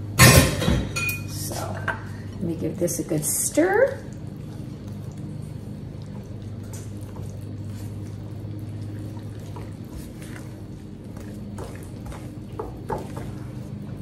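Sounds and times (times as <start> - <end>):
spoon stirring batter in bowl: 6.0 - 14.0.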